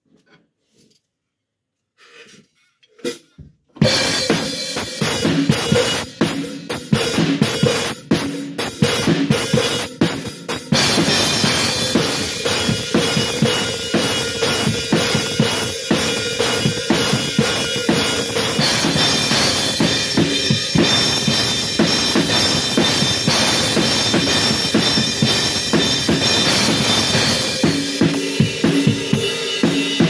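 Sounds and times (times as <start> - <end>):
drum kit groove: 2.9 - 30.0
cymbals washing: 8.9 - 30.0.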